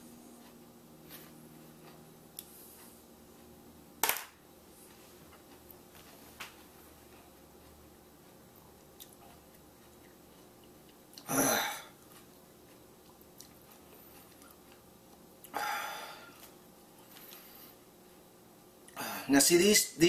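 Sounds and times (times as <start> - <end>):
man chewing: 0.0 - 3.7, 6.8 - 18.0
man coughing: 11.3 - 11.9.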